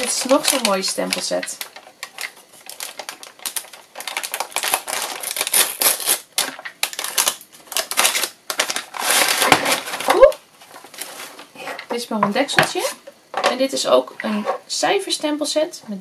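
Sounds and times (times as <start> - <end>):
paper crinkling and tearing: 0.0 - 11.5.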